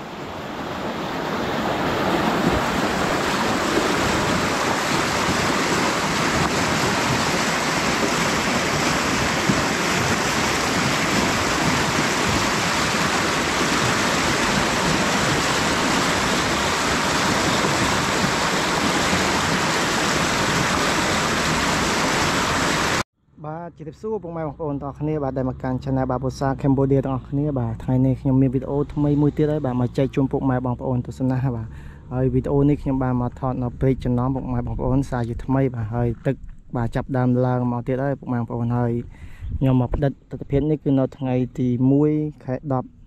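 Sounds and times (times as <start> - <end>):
flowing water rushing: 0.0 - 23.0.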